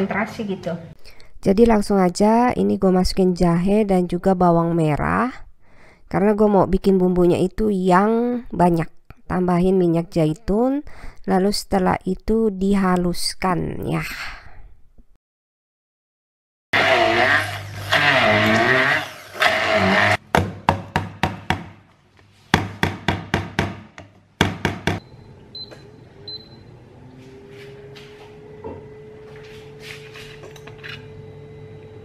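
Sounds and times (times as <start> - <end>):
immersion blender running: 16.8 - 20.2
short sharp blender bursts: 16.8 - 20.2.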